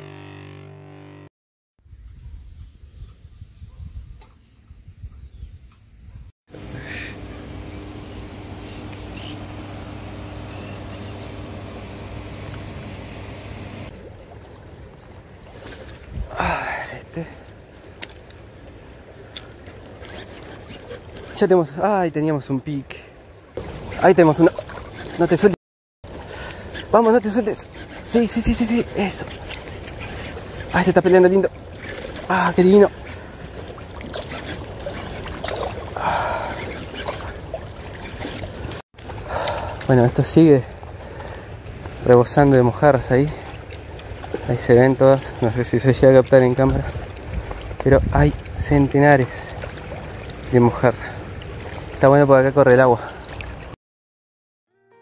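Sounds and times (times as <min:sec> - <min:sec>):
low rumble of flowing water: 0:04.7 - 0:53.8
faint bird chirps: 0:10.5 - 0:11.4.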